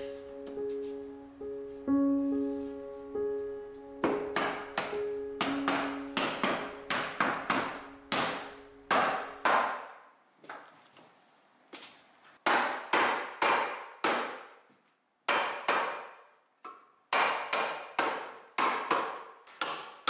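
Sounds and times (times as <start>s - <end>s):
soft piano music: 0.0s - 9.5s
sharp wooden knocks: 4.0s - 9.9s, 12.4s - 14.4s, 15.3s - 19.9s.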